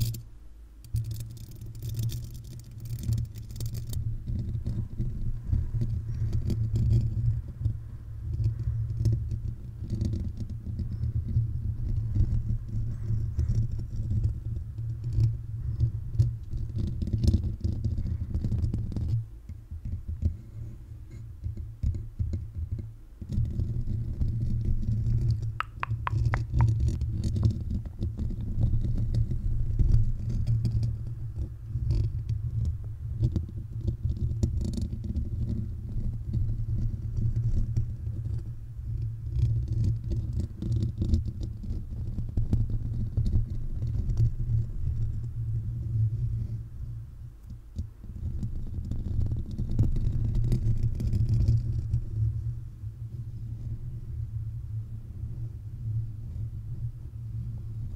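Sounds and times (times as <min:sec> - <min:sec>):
fingertips tapping microphone grille: 0:25.1 - 0:27.4.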